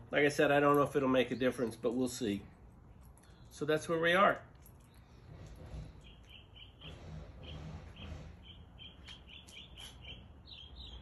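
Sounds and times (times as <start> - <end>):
small bird chirping: 5.9 - 11.0.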